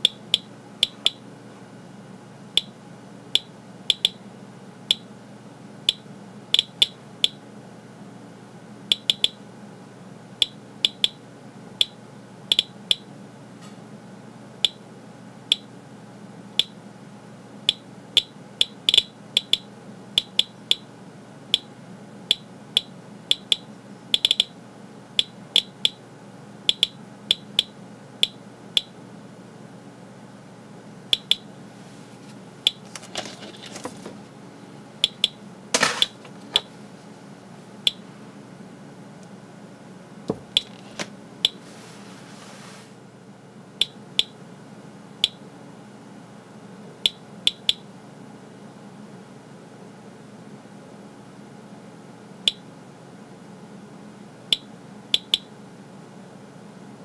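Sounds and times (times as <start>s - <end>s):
geiger counter clicking: 0.0s - 1.2s, 3.4s - 4.2s, 5.9s - 7.4s, 8.9s - 9.4s, 10.4s - 11.2s, 11.8s - 13.1s, 15.5s - 15.7s, 16.6s - 16.8s, 17.7s - 20.9s, 21.5s - 21.7s, 22.3s - 24.6s, 25.2s - 26.0s, 26.7s - 29.0s, 31.1s - 31.5s, 35.0s - 35.4s, 47.1s - 47.8s, 54.5s - 55.5s.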